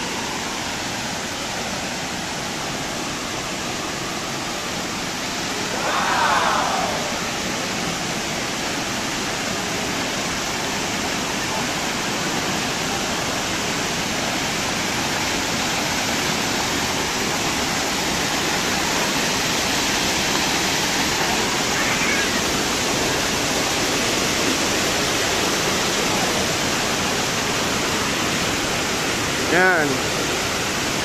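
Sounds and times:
water cascading over dam: 0:00.0 - 0:31.0.

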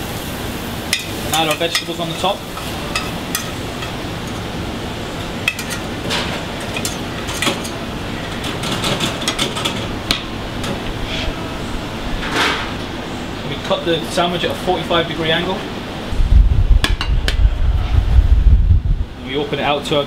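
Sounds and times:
kitchen hum: 0:00.0 - 0:18.6
metal utensil scraping frying pan: 0:01.0 - 0:04.5, 0:05.4 - 0:10.0.

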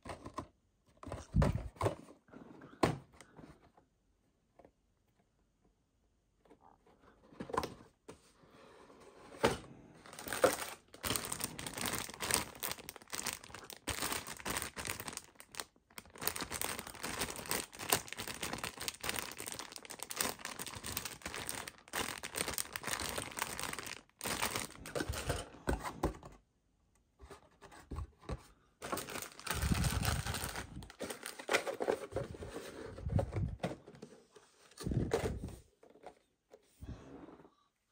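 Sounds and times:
plastic bag crinkling and tearing: 0:10.1 - 0:25.2, 0:28.8 - 0:31.9.

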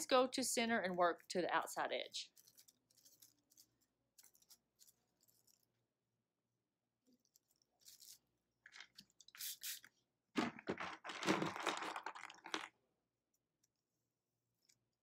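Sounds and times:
paper rustling and crinkling: 0:02.3 - 0:05.8, 0:07.2 - 0:09.4, 0:10.4 - 0:12.8.

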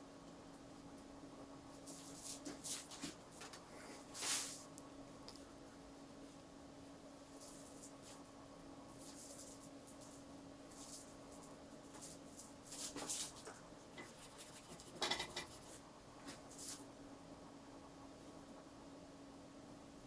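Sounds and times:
faint steady hum: 0:00.0 - 0:20.0
brush scratching on paper: 0:01.8 - 0:03.2, 0:08.9 - 0:16.9.

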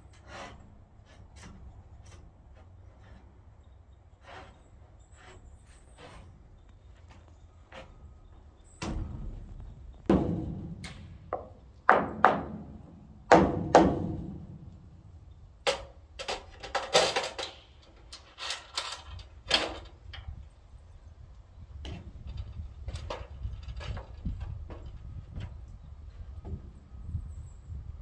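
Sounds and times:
wooden lumber knocks: 0:08.8 - 0:14.6.

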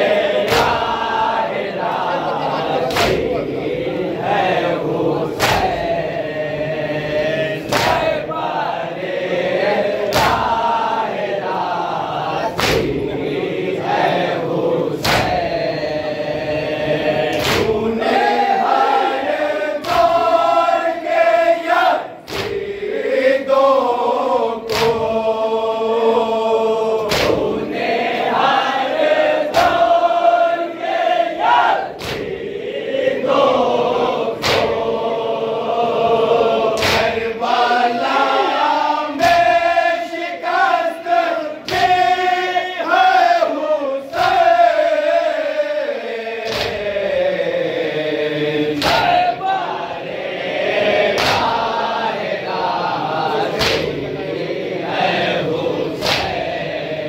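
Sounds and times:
men chanting in unison: 0:00.0 - 0:57.0.

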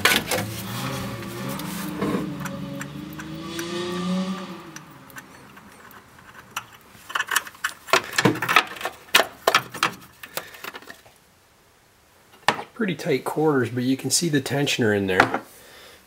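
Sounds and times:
light metallic clicks and clinks: 0:04.7 - 0:08.2.

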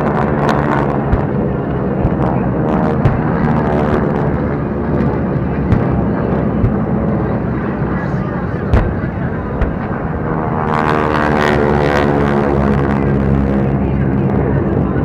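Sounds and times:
propeller planes droning overhead: 0:00.0 - 0:15.0
explosion pops and thumps: 0:03.0 - 0:04.1, 0:05.0 - 0:06.9, 0:08.7 - 0:10.0.

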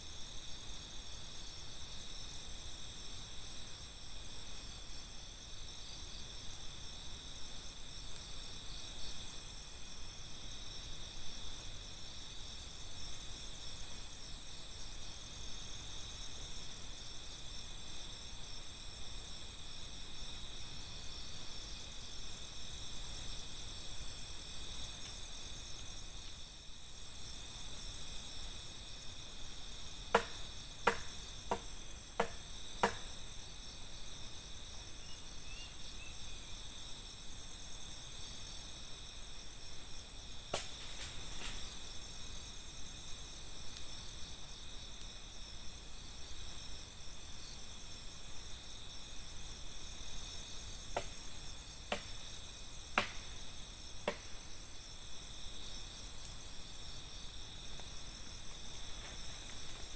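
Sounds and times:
crickets and insects chirping: 0:00.0 - 0:59.9
sharp knocks: 0:30.2 - 0:31.6.

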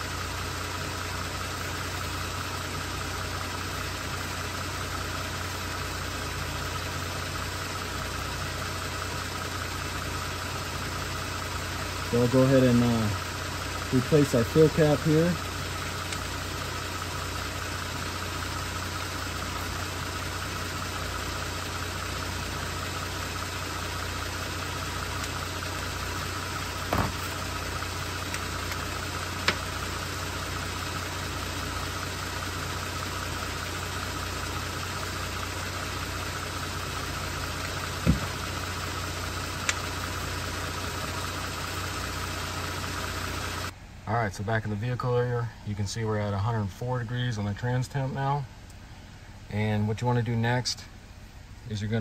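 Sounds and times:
engine idling: 0:00.0 - 0:52.0
sharp clicks and knocks: 0:29.4 - 0:29.6, 0:38.0 - 0:38.4.

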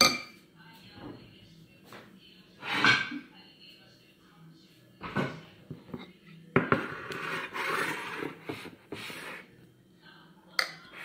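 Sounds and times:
dishes knocking on counter: 0:05.0 - 0:07.0
scraping salad from bowl: 0:06.8 - 0:09.5.

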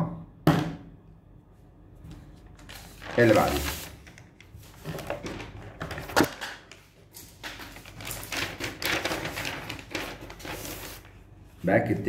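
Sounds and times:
paper rustling: 0:02.3 - 0:11.3.

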